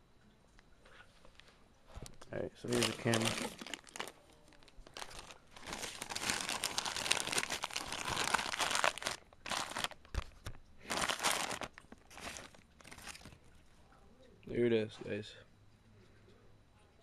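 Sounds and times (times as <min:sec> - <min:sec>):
packing wrap crinkling: 0:01.4 - 0:13.6.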